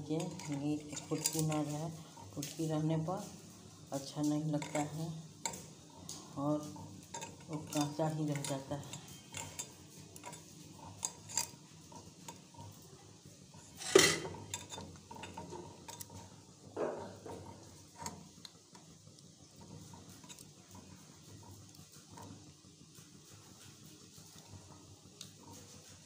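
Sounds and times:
pot clunking: 0.0s - 1.8s, 13.6s - 19.0s
batter stirred in steel pot: 0.0s - 26.0s.

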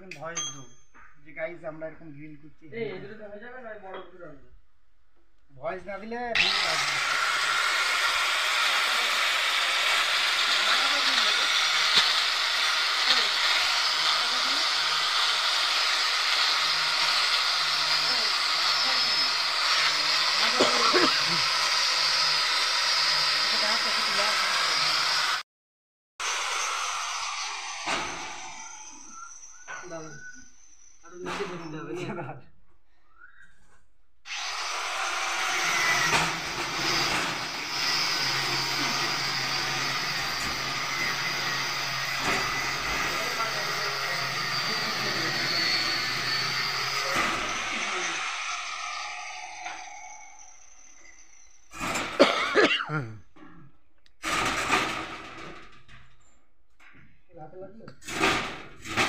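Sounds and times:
electric drill boring into brick: 6.4s - 25.4s, 26.2s - 29.8s, 34.3s - 52.7s, 54.2s - 55.8s, 58.0s - 59.0s.

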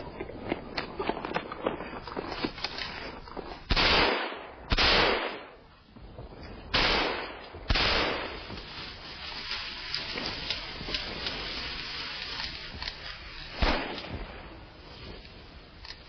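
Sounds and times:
gunshots echoing: 3.7s - 5.6s, 6.7s - 8.6s, 13.6s - 14.4s.

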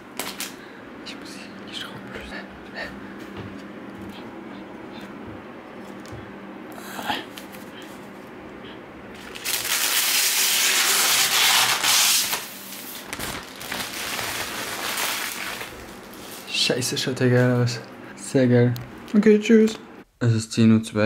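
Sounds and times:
plastic film rustling: 0.0s - 0.6s, 9.1s - 17.7s
plastic film tearing crackle: 0.1s - 0.6s, 9.1s - 16.5s.

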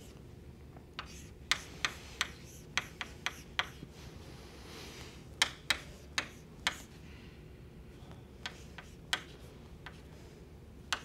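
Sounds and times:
chalk tapping on board: 1.0s - 3.8s, 5.4s - 6.9s, 8.4s - 10.0s.

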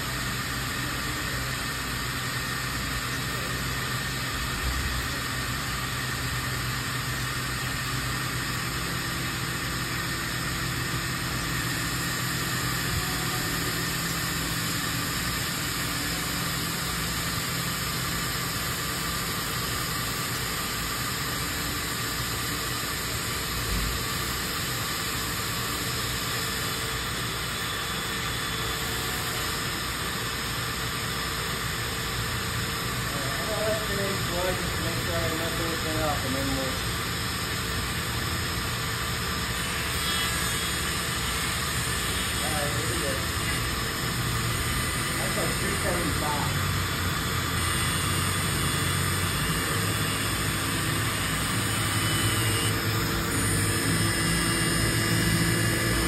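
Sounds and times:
machine hum and hiss: 0.0s - 56.0s.

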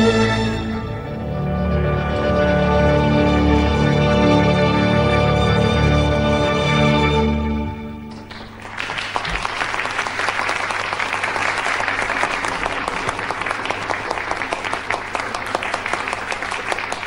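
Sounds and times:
audience applause: 8.1s - 17.0s.

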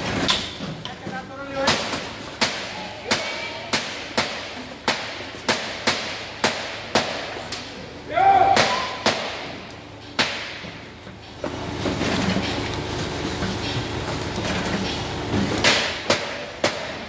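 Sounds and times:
machine rumble: 9.4s - 16.6s.

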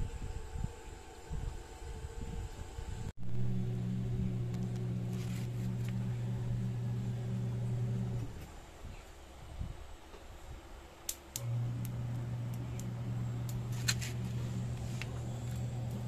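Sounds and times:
blower fan humming: 0.0s - 16.0s.

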